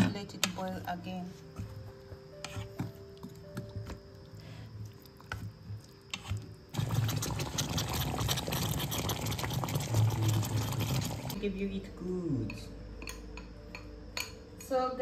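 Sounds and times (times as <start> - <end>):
thick sauce bubbling in a pot: 6.7 - 11.4.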